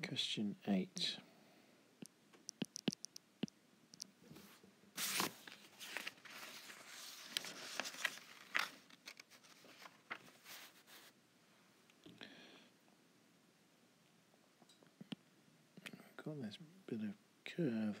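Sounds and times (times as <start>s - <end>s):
sharp clicks: 2.5s - 4.1s
rustling and handling noise: 4.0s - 11.2s.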